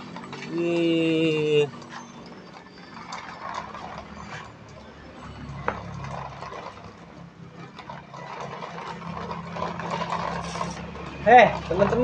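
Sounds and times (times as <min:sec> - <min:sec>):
toy truck rattling across tiles: 0:00.0 - 0:12.0.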